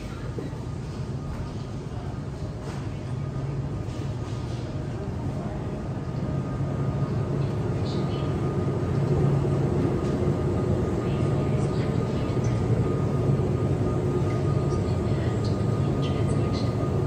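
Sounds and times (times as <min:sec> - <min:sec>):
low machinery hum: 0:00.0 - 0:17.0.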